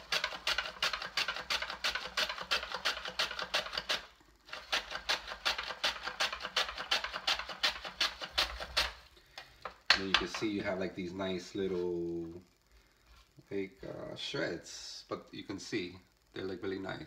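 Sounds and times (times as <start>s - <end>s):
slicing on a mandoline: 0.0s - 9.0s.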